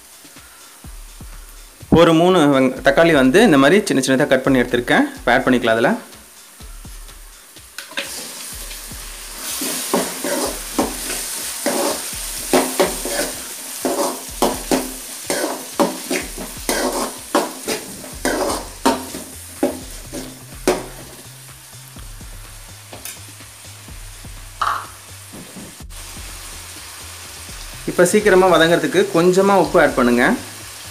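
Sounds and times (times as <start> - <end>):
tomatoes sizzling in oil: 0.0 - 30.9
ladle scraping pan: 9.4 - 21.2.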